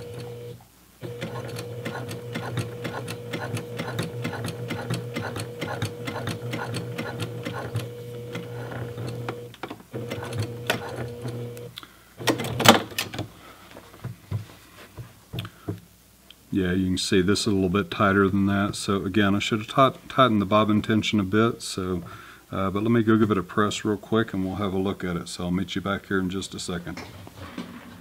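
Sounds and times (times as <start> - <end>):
sewing machine stitching: 0.0 - 13.2.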